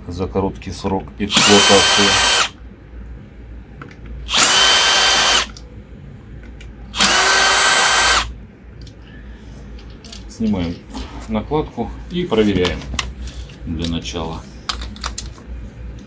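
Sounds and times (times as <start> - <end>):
cordless drill whining: 1.3 - 2.5, 4.3 - 5.5, 7.0 - 8.3.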